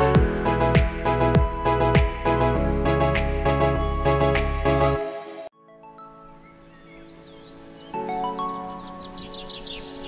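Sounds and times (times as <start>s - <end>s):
music with bass and beat: 0.0s - 5.3s.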